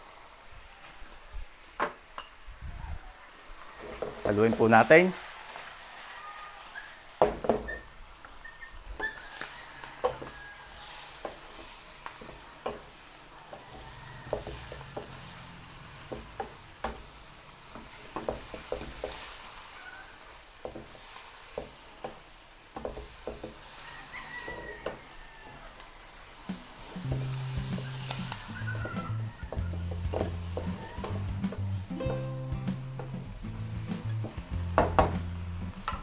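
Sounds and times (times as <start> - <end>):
food sizzling: 0.0 - 36.0
spatula scraping wok: 3.6 - 31.9.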